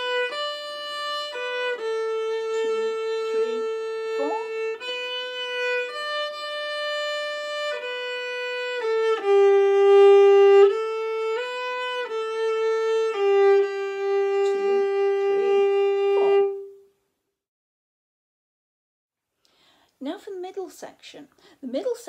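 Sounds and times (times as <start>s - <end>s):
bowed viola melody: 0.0s - 16.9s.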